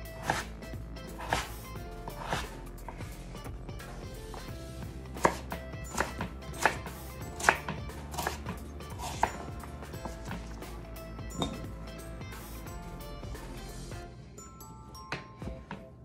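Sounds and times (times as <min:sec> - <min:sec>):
knife chopping on wooden board: 0:00.2 - 0:00.5, 0:01.1 - 0:01.6, 0:02.2 - 0:03.1, 0:05.2 - 0:09.4.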